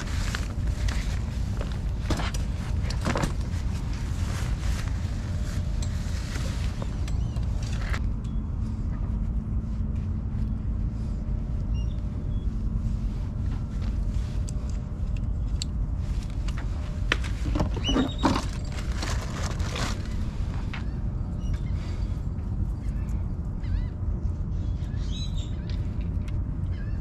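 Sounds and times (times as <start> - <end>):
squeaks: 17.6 - 20.2.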